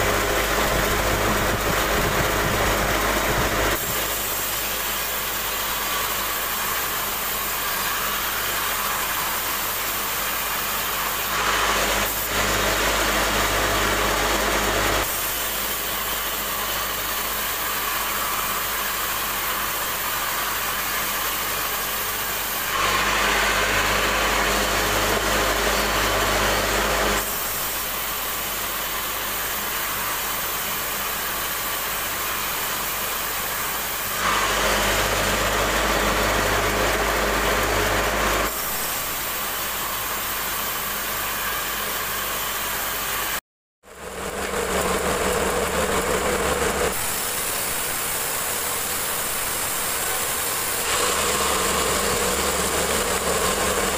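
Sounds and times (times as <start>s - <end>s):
band saw cutting timber: 0.0s - 53.9s.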